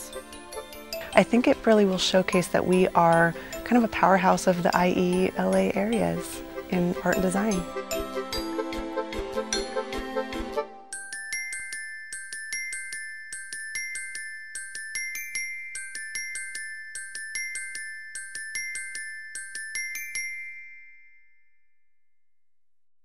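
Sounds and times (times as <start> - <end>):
light tune of bright struck notes: 0.0 - 8.8.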